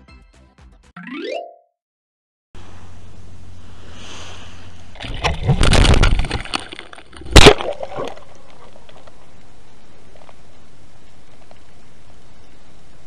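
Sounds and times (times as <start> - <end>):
muffled underwater hiss: 2.6 - 5.4.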